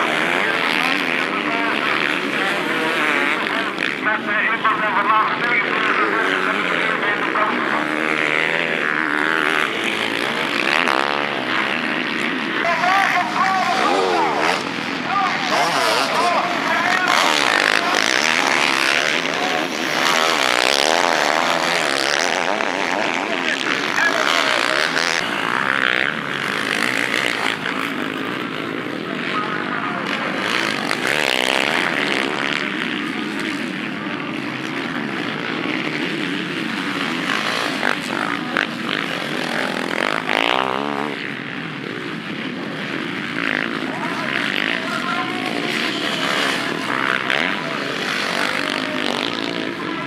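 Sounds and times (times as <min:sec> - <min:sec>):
motocross bike engines revving: 0:00.0 - 0:50.0.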